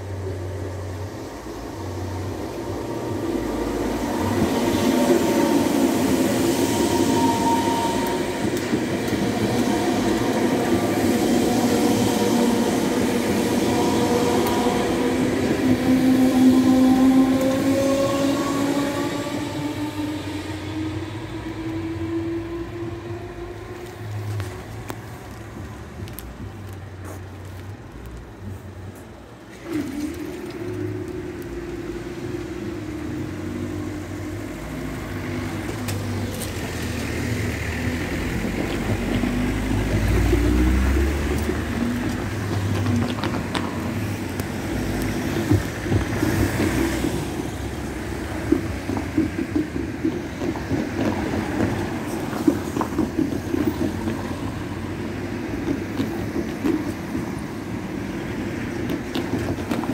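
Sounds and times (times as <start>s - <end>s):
level crossing warning alarm: 3.4s - 20.1s.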